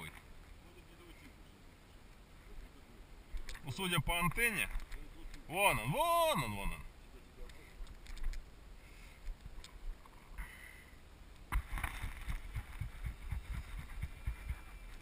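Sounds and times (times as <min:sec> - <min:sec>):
camera handling noise: 0:07.8 - 0:08.4.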